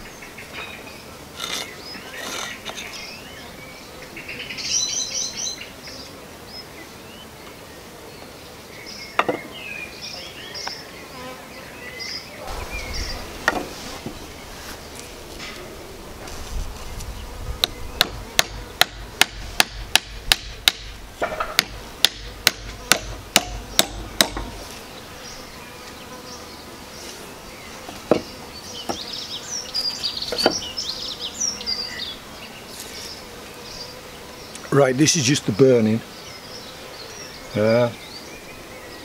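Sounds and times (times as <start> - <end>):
hammer knocking nail into wood: 17.6 - 24.6.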